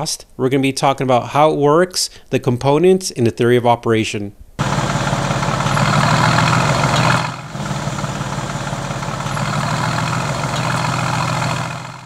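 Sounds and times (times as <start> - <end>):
car engine idling: 4.6 - 12.0.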